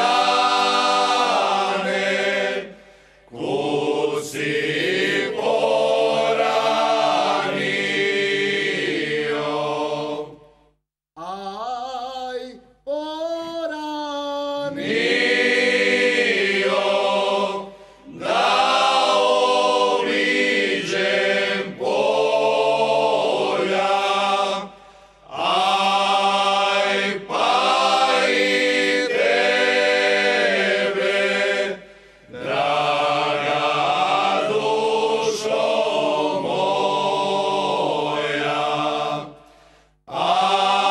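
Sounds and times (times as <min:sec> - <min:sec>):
men's group singing unaccompanied: 0:00.0 - 0:10.4, 0:14.7 - 0:24.7, 0:25.3 - 0:39.4, 0:40.1 - 0:40.9
single voice singing: 0:11.2 - 0:15.2.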